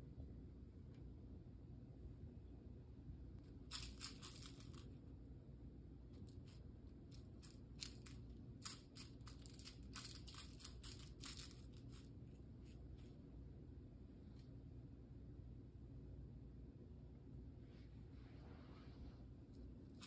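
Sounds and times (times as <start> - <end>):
cat rustling on rug: 17.6 - 20.0.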